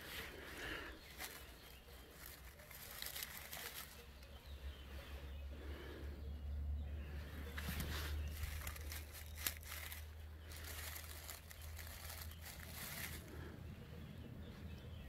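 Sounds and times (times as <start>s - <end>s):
dry leaves rustling: 0.0s - 5.2s, 7.4s - 13.5s.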